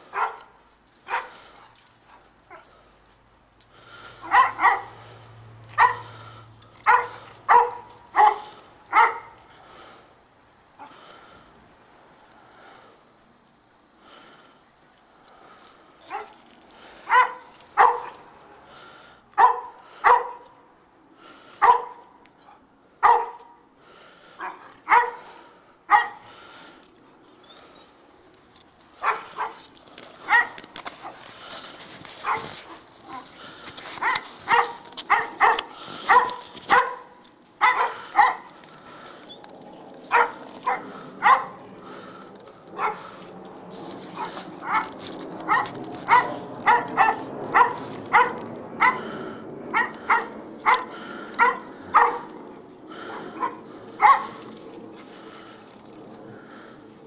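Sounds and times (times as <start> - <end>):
dogs barking: 0.0 - 2.8, 4.1 - 9.5, 16.0 - 16.4, 17.0 - 18.4, 19.4 - 20.6, 21.6 - 23.6, 24.4 - 26.3, 29.0 - 31.2, 32.2 - 33.4, 34.0 - 39.1, 40.0 - 43.2, 44.1 - 54.6.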